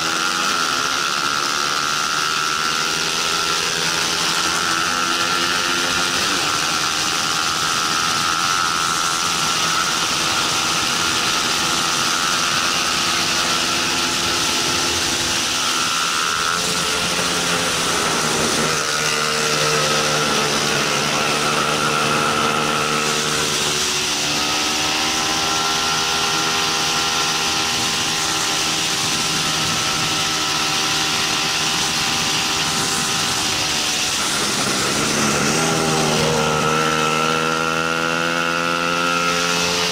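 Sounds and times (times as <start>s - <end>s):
motorcycle engine running hard: 0.0s - 39.9s
wind over microphone: 26.1s - 38.3s.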